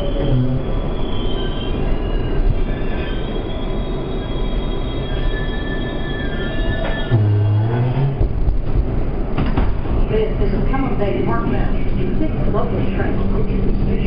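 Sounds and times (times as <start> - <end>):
steel wheels squealing: 0.0 - 8.2
subway car rumbling on rails: 0.0 - 14.0.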